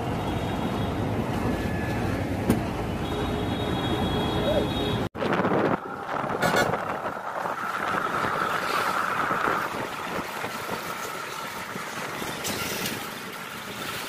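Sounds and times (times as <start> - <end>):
bus engine and road noise: 0.0 - 14.0
wind on microphone: 5.2 - 11.1.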